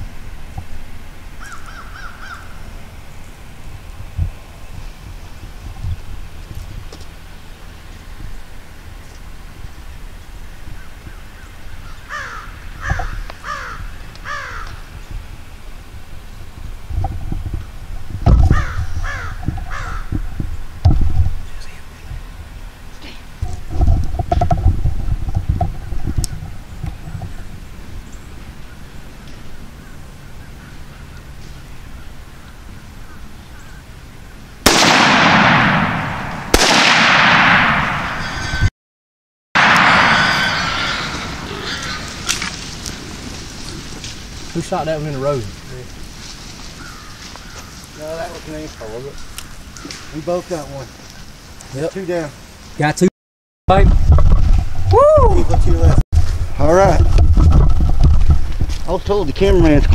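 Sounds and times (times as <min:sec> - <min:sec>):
crow cawing: 0:01.4 - 0:02.6, 0:11.1 - 0:14.9, 0:18.5 - 0:20.1, 0:39.6 - 0:42.6, 0:46.8 - 0:50.2
rifle shots: 0:34.6 - 0:38.3, 0:39.6 - 0:41.5.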